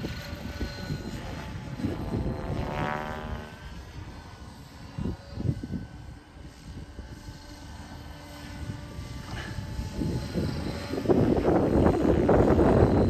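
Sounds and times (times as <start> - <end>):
model helicopter whine: 0.0 - 13.0.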